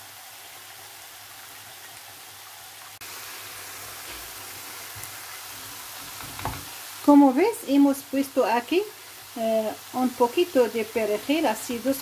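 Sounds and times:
food sizzling in frying pan: 2.7 - 12.0.

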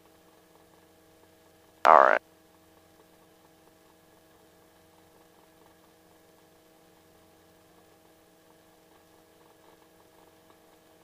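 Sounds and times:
faint electrical hum: 1.8 - 2.2.

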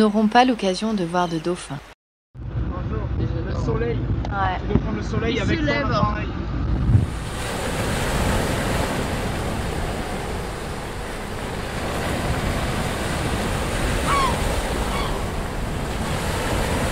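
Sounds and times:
wind on microphone: 2.4 - 16.9
waves breaking: 6.6 - 16.9.

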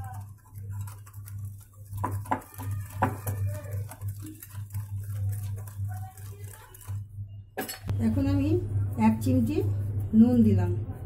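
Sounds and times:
whisk scraping a bowl: 0.0 - 7.2
steady low hum: 3.9 - 11.0.

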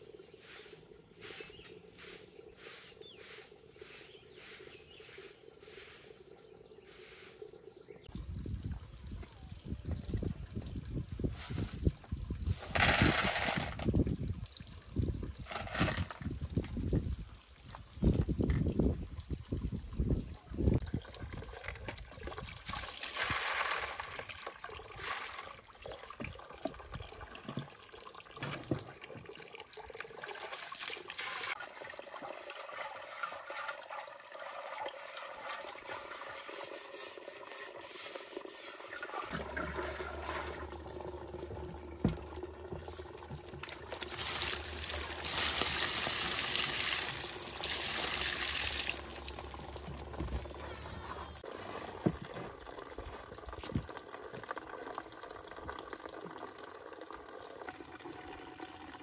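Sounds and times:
rush of water emptying: 12.4 - 14.1, 21.2 - 25.7, 30.2 - 52.1
water sloshing in jar: 20.8 - 54.5.

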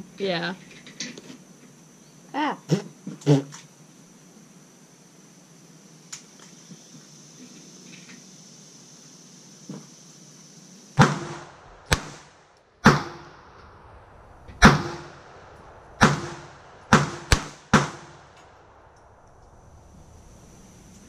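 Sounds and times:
pistol shots: 11.0 - 13.6, 14.6 - 18.9.

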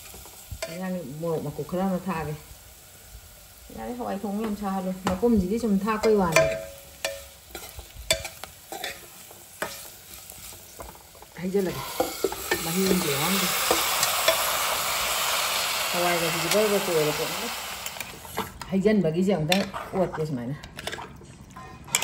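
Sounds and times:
frying sizzle: 0.0 - 18.9
metal ladle scraping pot: 19.4 - 22.0.

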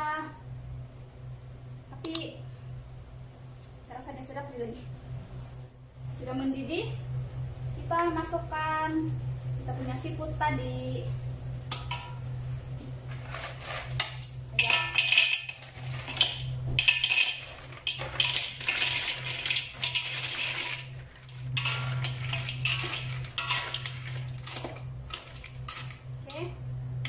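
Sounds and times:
metal spatula scraping wok: 13.1 - 26.0
shellfish clattering into metal wok: 13.2 - 26.0.

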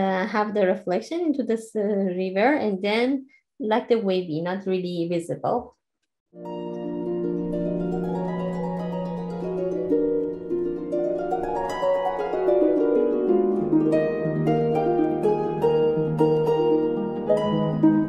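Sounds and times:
gentle instrumental music: 6.4 - 18.0.

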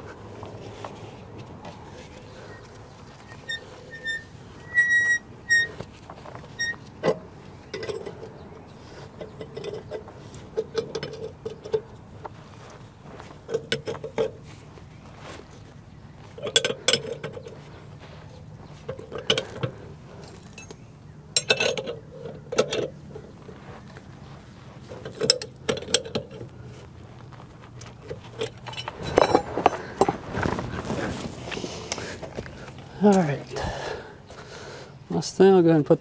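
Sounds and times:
metal clinks: 18.9 - 22.9.

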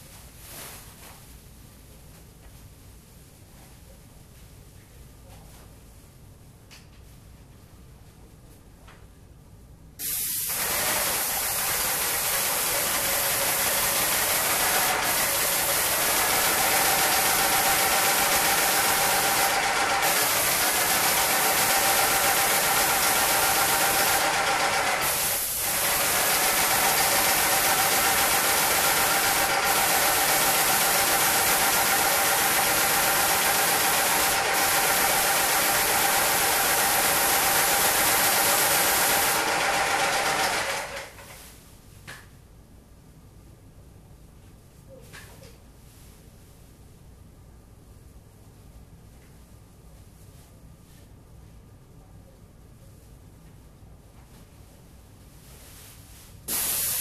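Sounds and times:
paint sprayer running: 10.0 - 41.4, 56.5 - 57.0.

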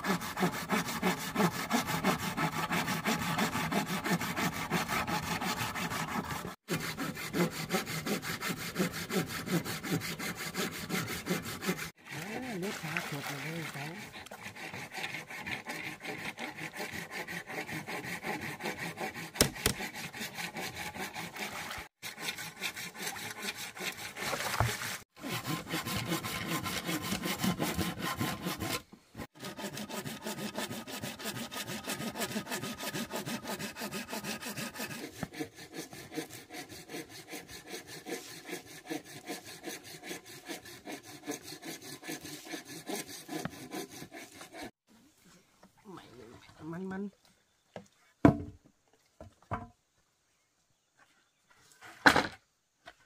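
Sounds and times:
cleaver chopping on wooden board: 19.3 - 19.9.

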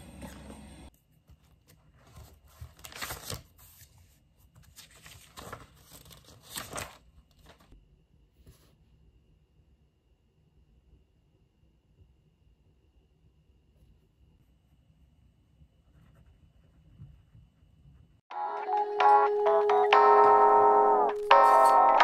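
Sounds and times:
paper rustling: 1.2 - 7.8
page-turn swishes: 1.4 - 7.7.

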